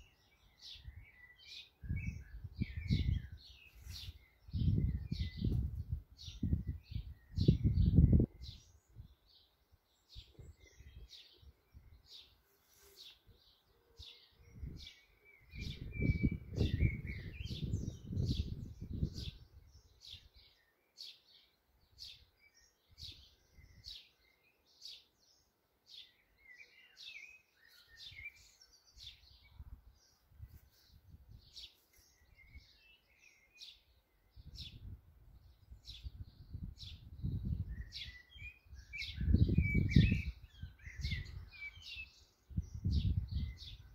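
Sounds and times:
blackbird singing warbled phrases: 0.0s - 43.9s
sparrows chirping: 0.0s - 43.9s.

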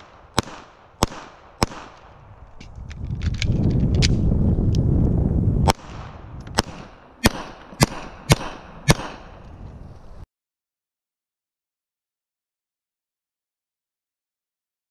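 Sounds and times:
pistol shots: 0.0s - 2.2s, 5.6s - 9.4s
low microphone rumble: 2.0s - 10.2s.

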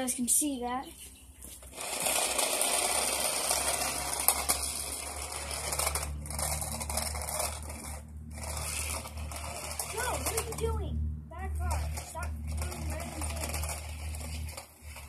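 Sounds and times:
rc car motor hiss: 1.8s - 10.2s.

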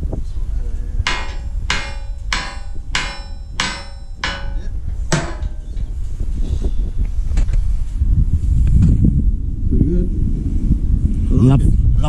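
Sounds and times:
hammer striking steel plate: 1.1s - 5.9s.

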